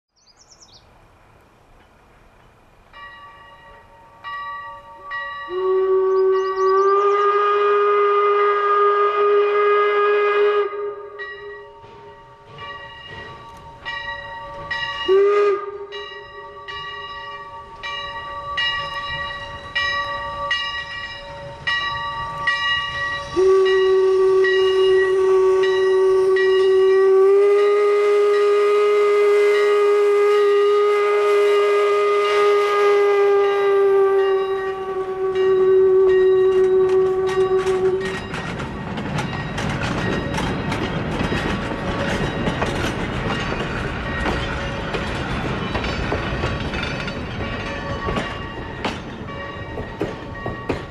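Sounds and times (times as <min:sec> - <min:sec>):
steam locomotive exhaust beats: 0:00.4 - 0:50.9
steam whistle blasts: 0:04.9 - 0:12.2, 0:15.0 - 0:17.0, 0:22.5 - 0:38.3.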